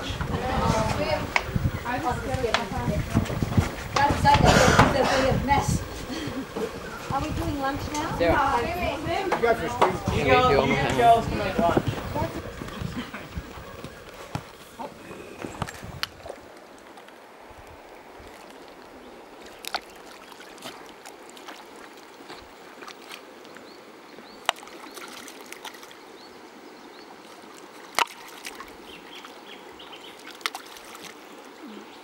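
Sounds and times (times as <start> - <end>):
river water running over stones: 0.0 - 32.0.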